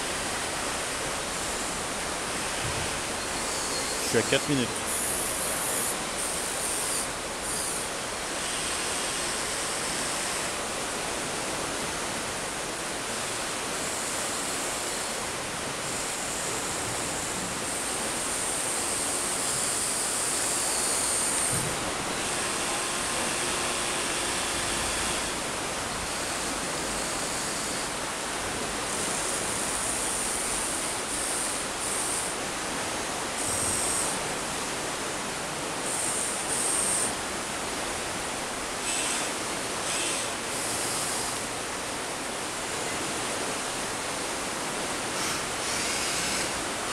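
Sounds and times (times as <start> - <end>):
high electric motor whine: 0.0 - 46.9
river water rushing: 0.0 - 46.9.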